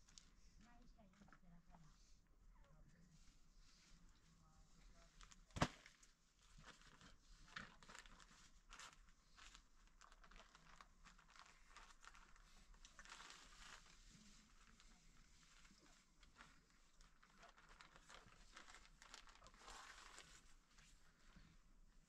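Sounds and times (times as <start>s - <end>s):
plastic sheet crinkling: 4.9s - 21.3s.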